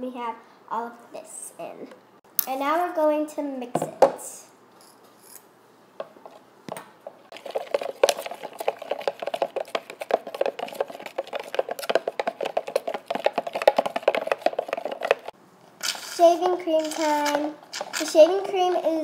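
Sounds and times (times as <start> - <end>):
utensil tapping: 6.0 - 15.3
utensil stirring glue in a bowl: 7.3 - 18.9.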